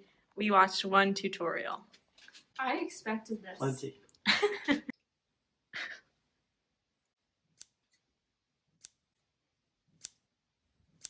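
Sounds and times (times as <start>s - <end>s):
scissors snipping: 7.5s - 8.1s, 9.9s - 10.2s.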